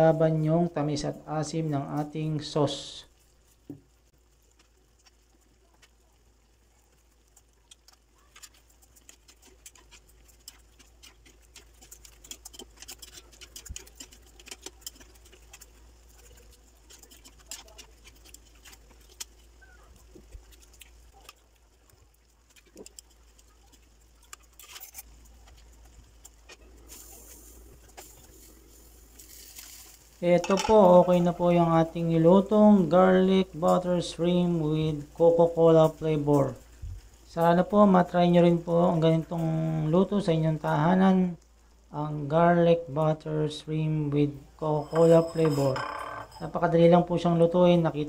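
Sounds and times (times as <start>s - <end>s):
sauce simmering with pops: 0.0s - 48.0s
metal spoon scraping pan: 44.6s - 46.7s.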